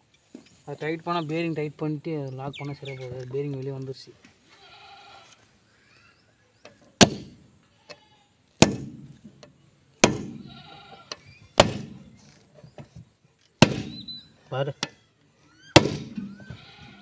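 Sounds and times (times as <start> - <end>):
sledgehammer striking steel punch: 7.0 - 7.4, 8.6 - 9.2, 10.0 - 10.4, 11.6 - 12.0, 13.6 - 14.1, 15.8 - 16.2.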